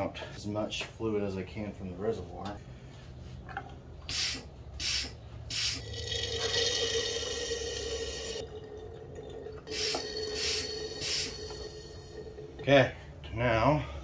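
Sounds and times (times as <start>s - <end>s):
hand pump sucking fluid: 9.6s - 12.2s.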